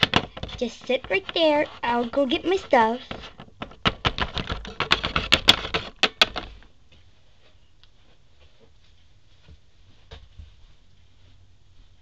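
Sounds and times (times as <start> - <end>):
faint room hiss: 0.0 - 12.0
plastic toy clattering on wood: 3.1 - 6.6.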